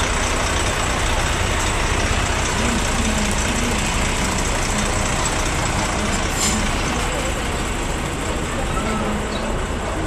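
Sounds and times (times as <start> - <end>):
diesel lorry engine idling: 0.0 - 10.0.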